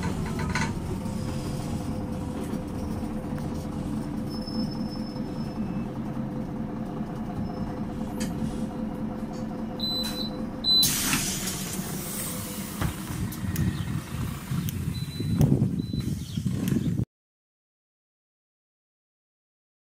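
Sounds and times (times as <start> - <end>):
diesel bus idling: 0.0 - 16.2
compressed air hiss: 10.8 - 12.8.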